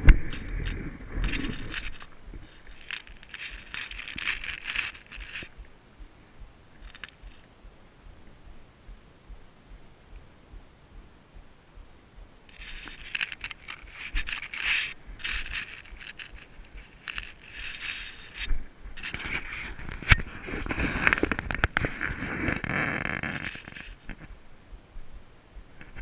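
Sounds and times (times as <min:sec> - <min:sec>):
rustling and scraping on rock: 0:00.0 - 0:05.7, 0:06.8 - 0:07.5, 0:12.5 - 0:24.4.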